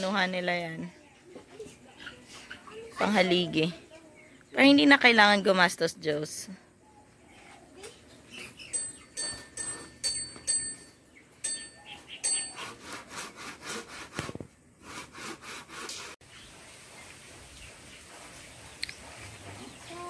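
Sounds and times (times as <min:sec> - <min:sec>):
hand saw cutting wood: 0:12.5 - 0:16.2.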